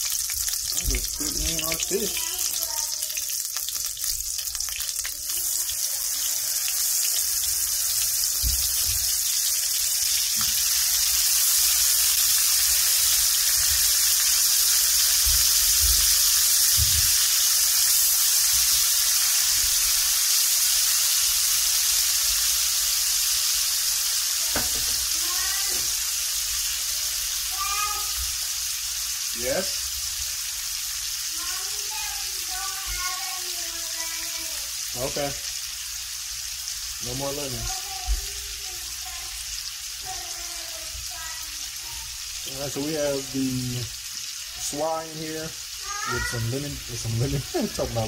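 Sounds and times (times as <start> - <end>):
fish sizzling in oil: 0.0 - 48.0.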